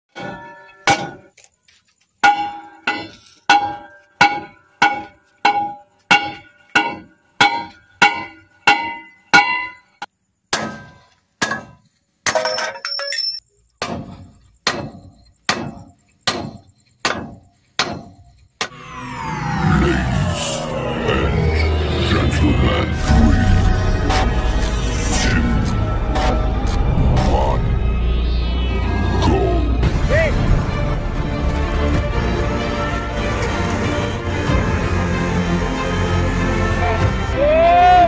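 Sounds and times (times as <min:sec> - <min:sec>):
steel bar clanging on metal hub: 0:02.2 - 0:10.0.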